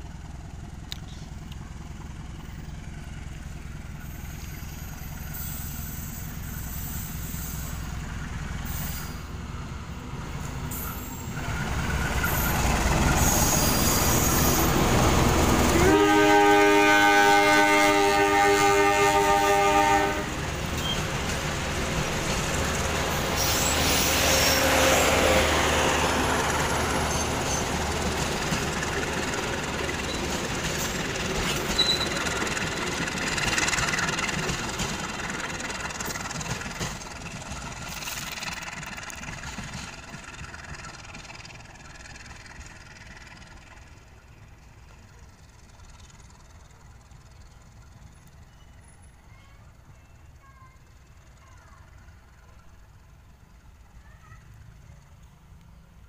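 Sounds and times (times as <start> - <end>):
train coaches rumbling and clattering: 0.0 - 56.0
locomotive horn chord: 15.6 - 20.4, 24.0 - 25.8.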